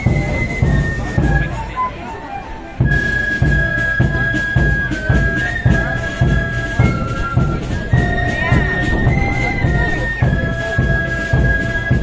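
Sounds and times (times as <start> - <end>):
flutes playing held notes: 0.0 - 12.0
bass drum thumps: 2.9 - 12.0.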